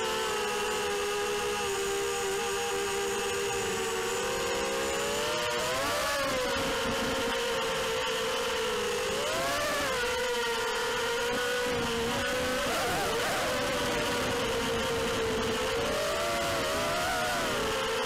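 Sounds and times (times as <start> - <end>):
quadcopter motors whining: 0.0 - 18.0.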